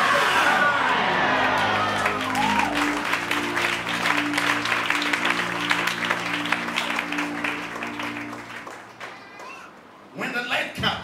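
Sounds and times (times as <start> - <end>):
congregation applauding: 0.8 - 9.7
sustained keyboard chords: 1.2 - 9.0.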